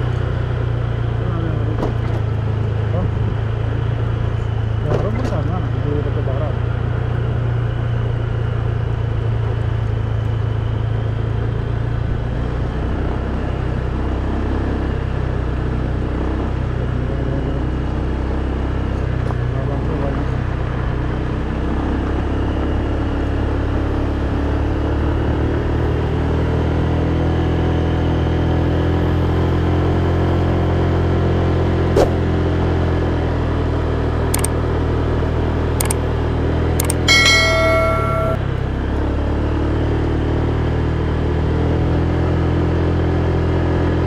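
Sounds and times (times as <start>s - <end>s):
motorcycle engine and road rumble: 0.0s - 44.0s.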